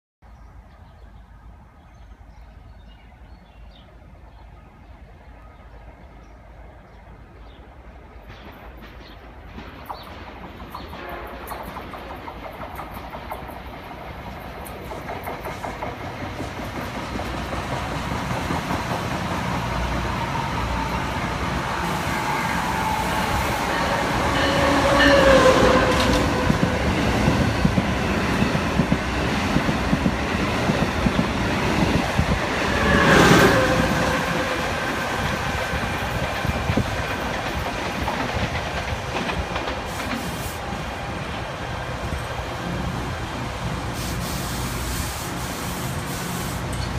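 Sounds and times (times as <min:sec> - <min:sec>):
falling whine of passing train: 0:03.8 - 0:46.9
train wheels clickety-clack: 0:08.1 - 0:41.0.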